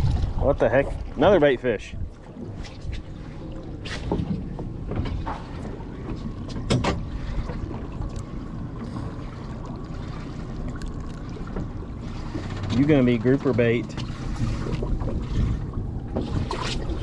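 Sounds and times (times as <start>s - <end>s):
sea noise: 0.0s - 17.0s
wind: 0.0s - 17.0s
clicks and knocks from fishing rod: 3.8s - 8.3s.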